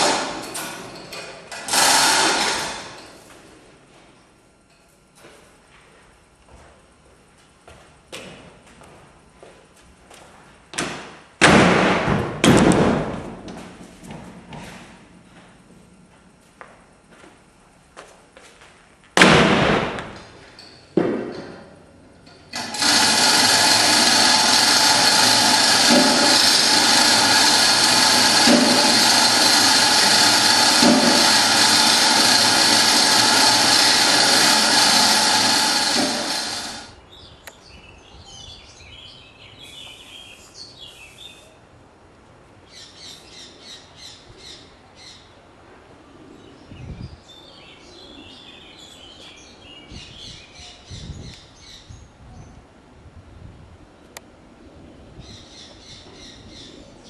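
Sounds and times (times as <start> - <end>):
machine motor whining: 22.2 - 37.0.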